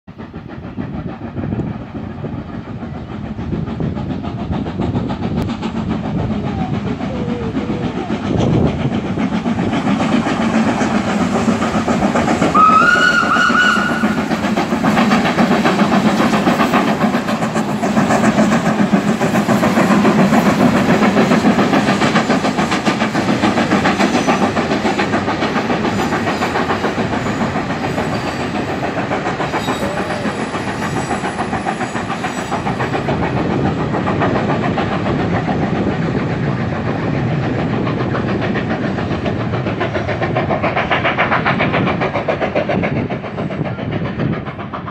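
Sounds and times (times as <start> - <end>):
steam locomotive exhaust beating: 0.1 - 44.9
steam whistle: 12.5 - 14.2.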